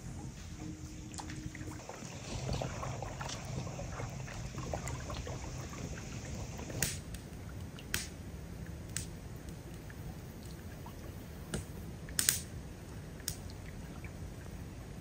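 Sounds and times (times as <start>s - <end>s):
low steady drone: 0.0s - 7.1s.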